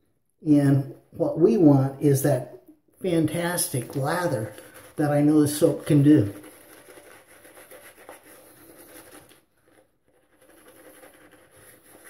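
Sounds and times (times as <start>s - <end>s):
shaving brush squishing lather: 3.0s - 12.0s.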